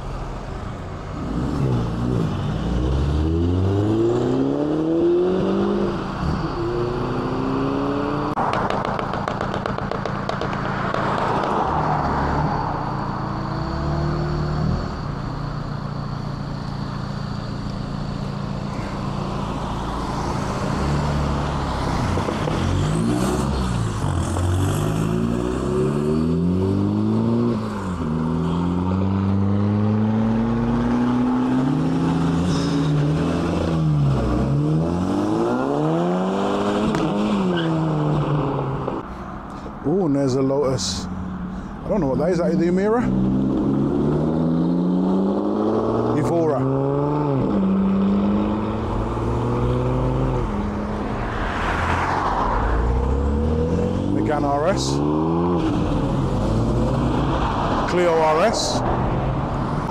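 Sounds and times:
cars accelerating away: 1.2 - 8.8, 19.7 - 39.0, 40.8 - 59.9
cars idling: 15.0 - 22.0, 39.0 - 43.8.

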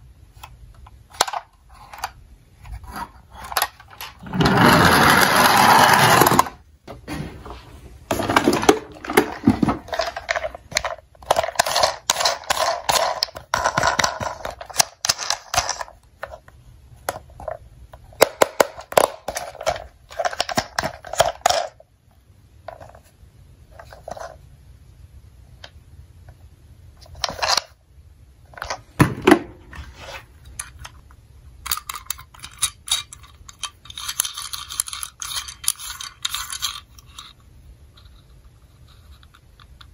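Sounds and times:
plastic toy cars clicking and rattling: 0.4 - 6.6, 8.1 - 16.4, 17.0 - 21.8, 31.6 - 39.9.

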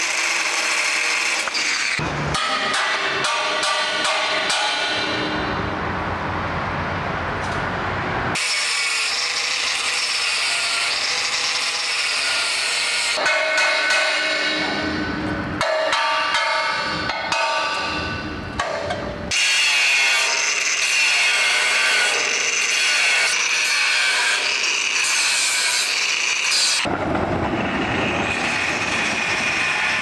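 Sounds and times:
sawing and grinding stone: 8.4 - 14.4, 19.3 - 26.9.

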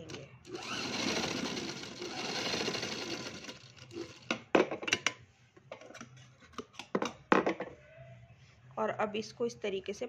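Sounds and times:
sewing machine running: 0.0 - 4.2.

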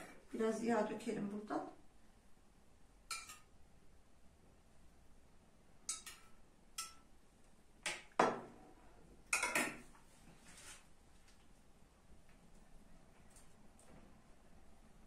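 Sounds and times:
metal spoon clinking on metal: 3.1 - 3.5, 5.8 - 7.1, 9.4 - 9.8.

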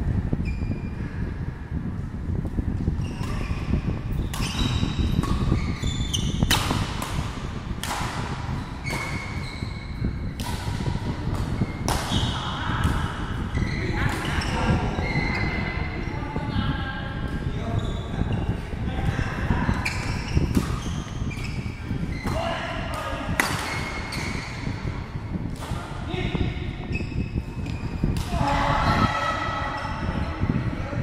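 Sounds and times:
steady low rumble: 0.0 - 31.0
rackets smacking shuttlecock: 3.1 - 9.4, 10.2 - 13.3, 19.8 - 24.7.

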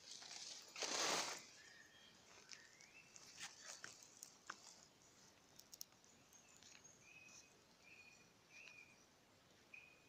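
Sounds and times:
faint bird chirp: 1.2 - 10.0
faint scattered ticks: 2.4 - 7.9.

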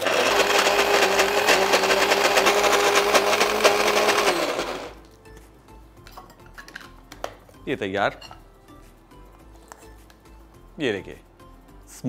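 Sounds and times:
mixer grinder running: 0.0 - 5.0.

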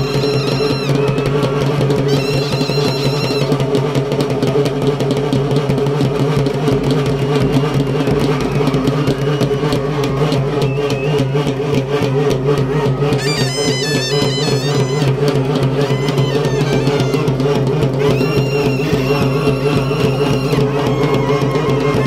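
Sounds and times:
high melody line: 0.0 - 1.0, 13.2 - 21.4
drums in fast rhythm: 0.0 - 22.0.

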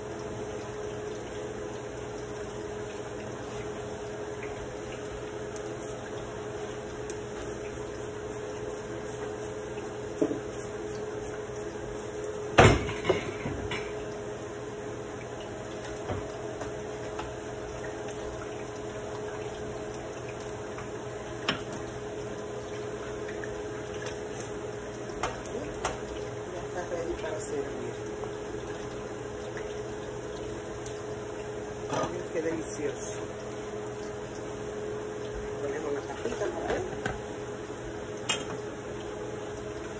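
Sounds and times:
slices frying in oil: 0.0 - 39.9.

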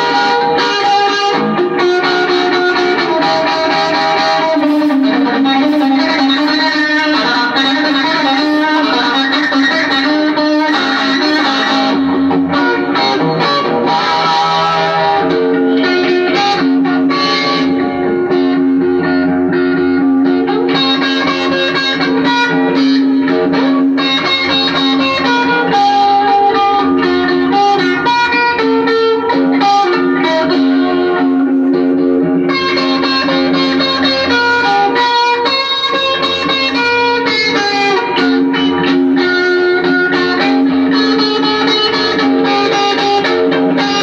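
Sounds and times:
electric guitar playing blues: 0.0 - 44.0
steady held low note: 3.0 - 13.4.

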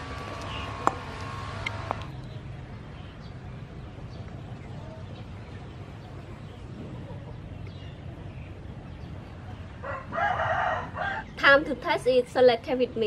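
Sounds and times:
faint chickens clucking: 4.0 - 11.4.

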